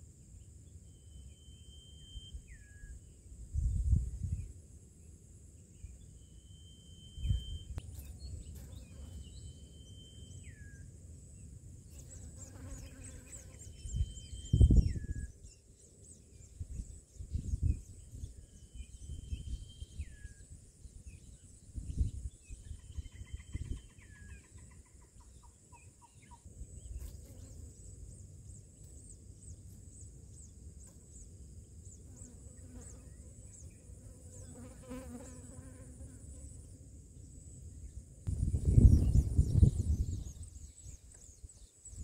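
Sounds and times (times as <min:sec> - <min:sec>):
insects buzzing and chirping: 0:00.0 - 0:42.0
faint whistled bird calls: 0:00.7 - 0:04.5, 0:05.7 - 0:10.9, 0:12.5 - 0:27.6.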